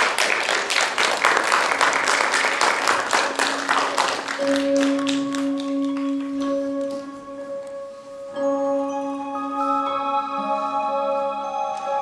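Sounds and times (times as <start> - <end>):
crowd applauding: 0.0 - 7.1
held musical note: 3.3 - 12.0.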